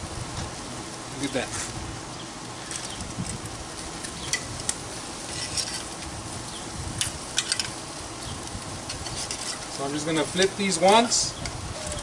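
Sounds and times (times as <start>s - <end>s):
meat sizzling on a grill: 0.0s - 12.0s
metal tongs clicking on grate: 7.0s - 7.8s.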